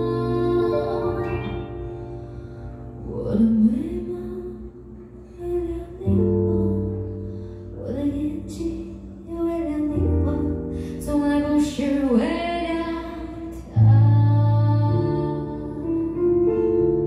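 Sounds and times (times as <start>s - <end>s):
woman singing a gentle song: 0.0s - 2.2s, 2.9s - 17.0s
electric keyboard chords: 0.0s - 3.2s.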